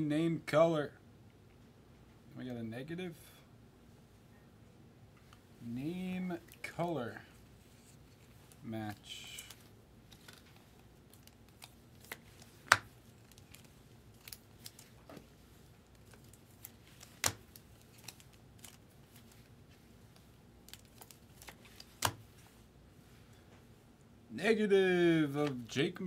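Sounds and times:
cards rustling: 0:06.4 - 0:22.6.

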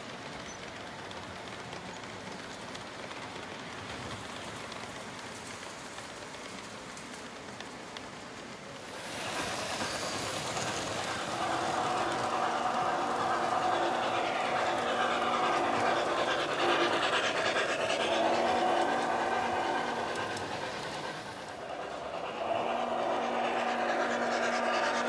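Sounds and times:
model train wheels rumbling on rail: 0:00.0 - 0:25.0
steady tones: 0:08.9 - 0:25.0.

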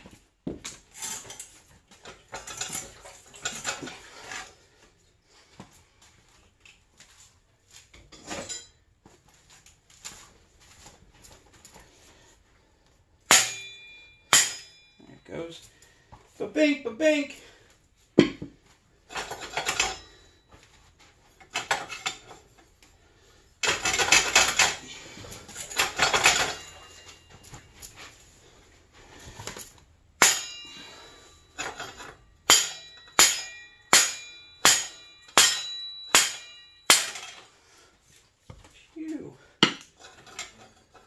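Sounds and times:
hammer striking steel: 0:13.3 - 0:15.0, 0:30.2 - 0:37.4
metallic clattering and knocking: 0:18.2 - 0:20.4, 0:21.4 - 0:22.7, 0:23.6 - 0:27.9.

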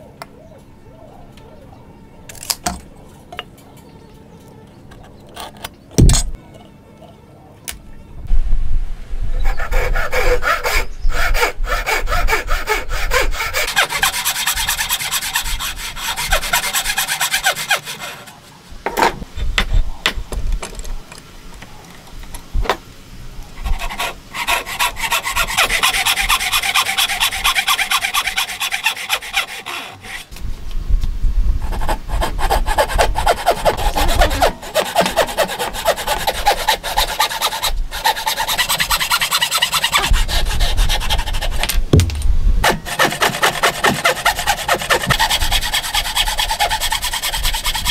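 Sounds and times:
hand saw cutting wood: 0:09.5 - 0:18.6, 0:23.6 - 0:30.3, 0:31.7 - 0:42.0, 0:42.6 - 0:47.9
knocks on wood: 0:41.9 - 0:42.3.

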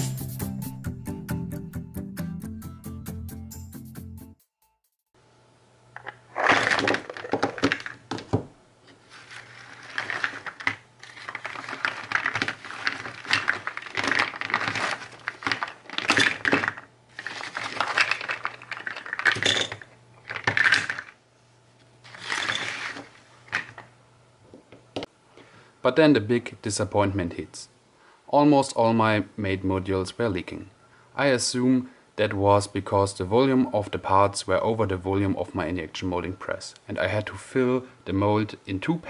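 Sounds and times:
plastic parts clattering: 0:06.0 - 0:08.4, 0:09.0 - 0:21.2, 0:22.1 - 0:23.9.

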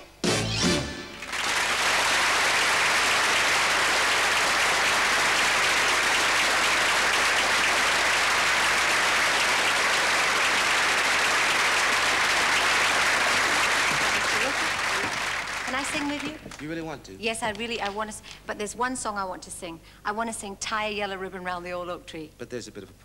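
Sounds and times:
audience applauding: 0:00.9 - 0:16.8.

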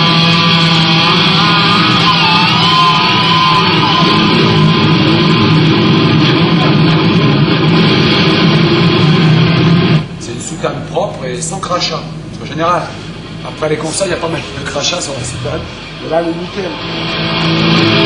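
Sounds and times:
punk rock with electric guitar: 0:00.0 - 0:10.2, 0:16.7 - 0:18.0.

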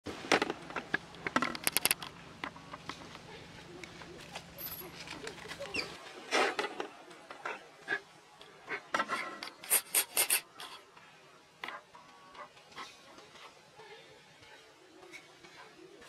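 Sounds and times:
rustling of dry leaves: 0:00.1 - 0:06.6.

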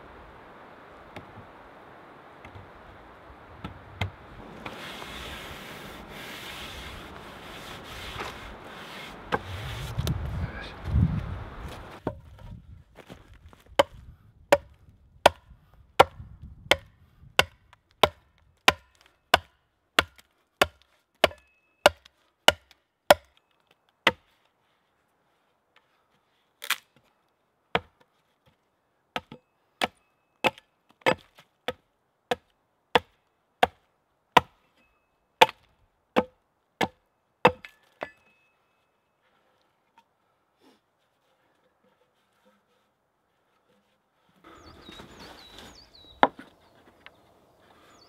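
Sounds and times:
axe chopping wood: 0:13.7 - 0:23.4, 0:24.0 - 0:24.3, 0:27.7 - 0:28.0, 0:29.2 - 0:33.8, 0:34.4 - 0:34.6, 0:35.4 - 0:38.3.

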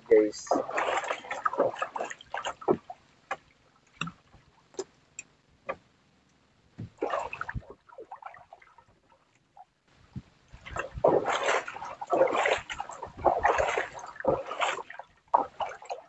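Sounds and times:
water splashing against boat hull: 0:00.1 - 0:05.0, 0:06.7 - 0:16.0
light clicks and drips: 0:03.2 - 0:10.8.

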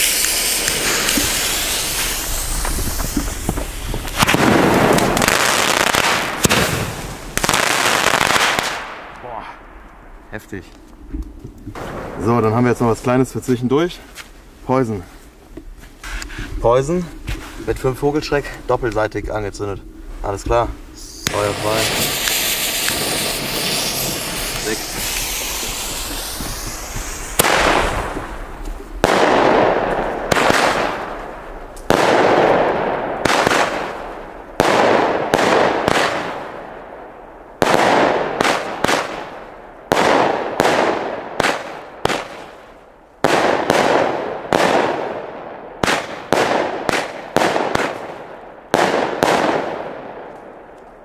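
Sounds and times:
firework battery firing shots: 0:00.0 - 0:09.1, 0:21.2 - 0:50.5.

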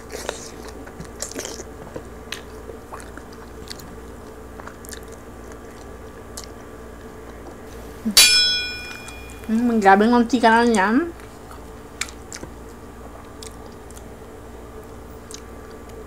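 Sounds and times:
biting and chewing: 0:00.0 - 0:07.8, 0:11.2 - 0:16.0
bell-like ringing tone: 0:08.2 - 0:09.5.

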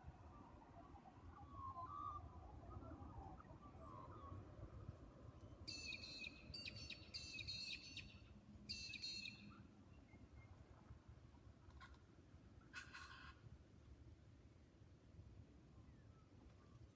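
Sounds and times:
faint low outdoor rumble: 0:00.0 - 0:16.9.

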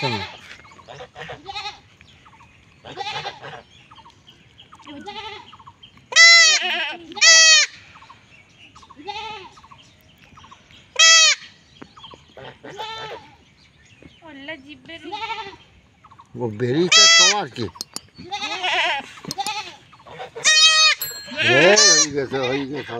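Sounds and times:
goat kid bleating in distress: 0:04.9 - 0:05.5, 0:06.1 - 0:07.8, 0:09.0 - 0:09.5, 0:18.2 - 0:19.8.

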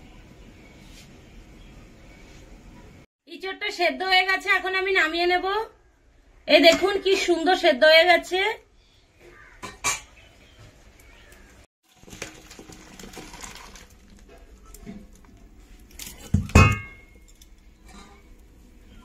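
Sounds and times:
metal cookware knocks and clinks: 0:09.6 - 0:10.1, 0:16.3 - 0:18.2
metal pot clanging: 0:09.6 - 0:10.2, 0:16.0 - 0:18.4.

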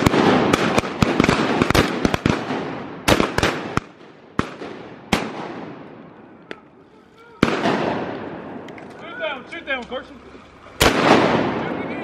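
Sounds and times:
shotgun blasts echoing: 0:00.0 - 0:06.6, 0:07.4 - 0:08.9, 0:10.8 - 0:12.0.

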